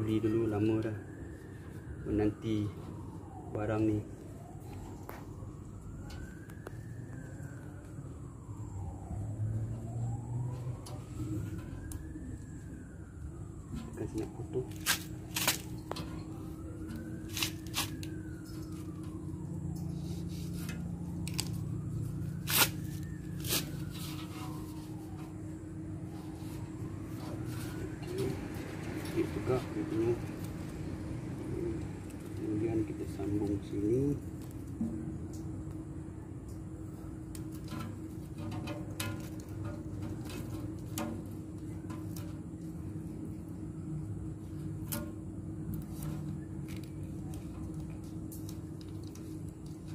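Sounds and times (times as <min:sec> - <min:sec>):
faint wailing siren: 0:00.0 - 0:49.9
tape crackling and clicking: 0:09.8 - 0:29.3, 0:34.2 - 0:43.5, 0:44.8 - 0:49.9
sharp clicks and crackles: 0:45.7 - 0:49.9.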